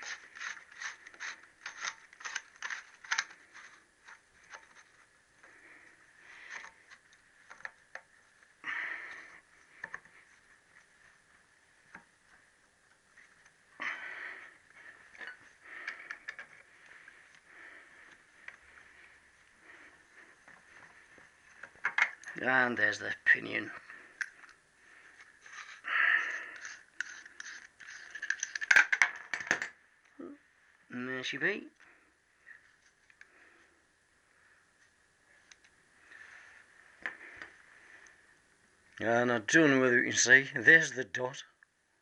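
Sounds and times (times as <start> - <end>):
faint metallic clicks and scrapes: 0.0 - 8.2, 14.7 - 22.6, 23.5 - 30.2
rustles: 0.0 - 29.3.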